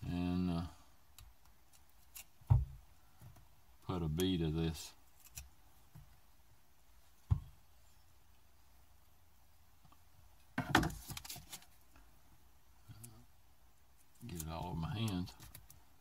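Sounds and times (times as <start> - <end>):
crackling and clicking: 14.0 - 15.8
hand-handling noises: 14.0 - 16.0.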